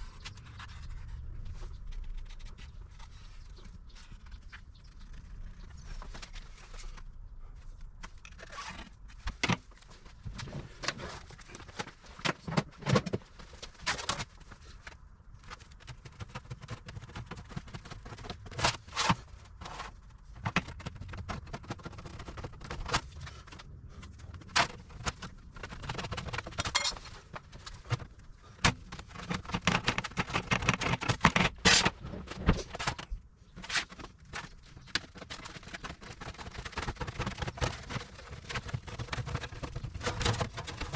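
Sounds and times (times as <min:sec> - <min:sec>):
metallic clinks and knocks: 0:26.7 - 0:27.1.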